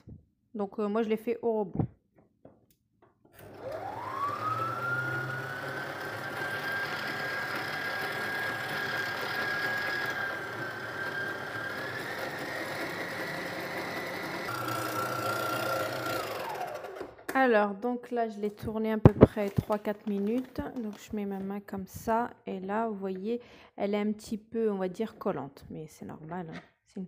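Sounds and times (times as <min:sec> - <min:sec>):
stand mixer motor whining: 0:03.4 - 0:17.3.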